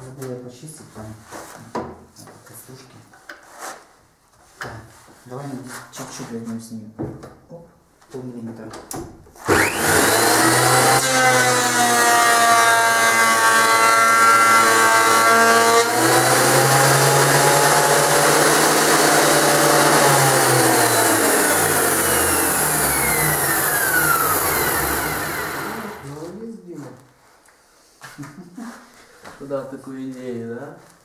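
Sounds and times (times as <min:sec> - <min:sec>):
planer motor winding down: 0:09.5 - 0:26.2
thickness planer planing board: 0:09.5 - 0:26.3.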